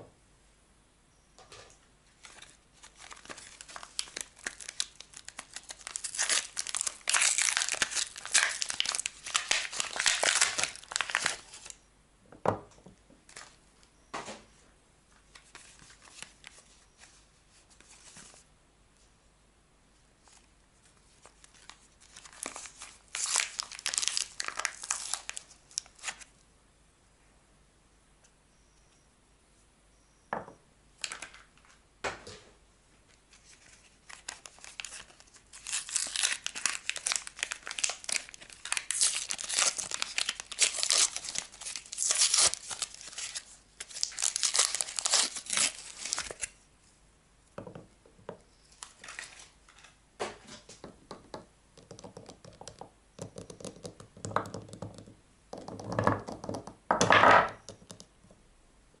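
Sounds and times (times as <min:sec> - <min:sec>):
paper wrapper tearing and crinkling: 0:02.2 - 0:11.8, 0:21.3 - 0:26.3, 0:33.5 - 0:46.6, 0:48.8 - 0:49.9.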